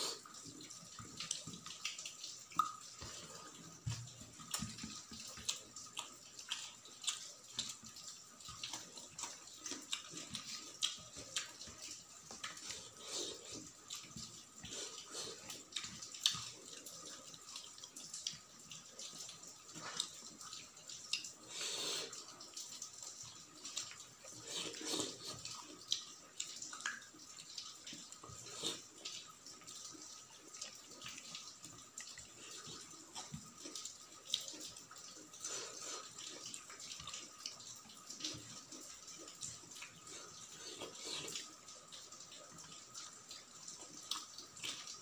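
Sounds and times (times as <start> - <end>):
chewing and lip smacking: 3.9 - 18.4, 42.3 - 45.0.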